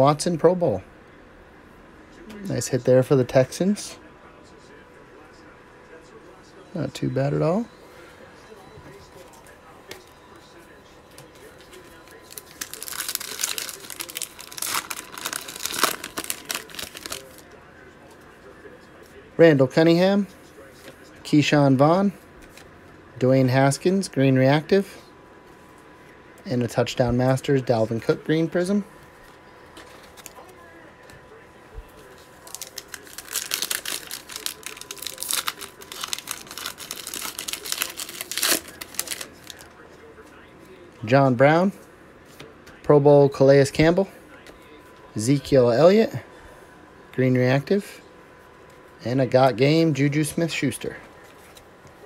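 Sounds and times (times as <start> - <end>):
foil wrapper crinkling and tearing: 12.1 - 17.4, 32.1 - 39.7.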